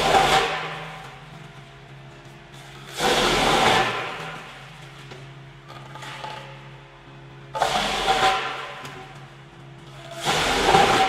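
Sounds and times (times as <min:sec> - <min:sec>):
wood chipper crunching logs: 0:00.0 - 0:01.3, 0:02.6 - 0:06.8, 0:07.5 - 0:09.2, 0:09.9 - 0:11.0
wood chipper humming: 0:00.0 - 0:11.0.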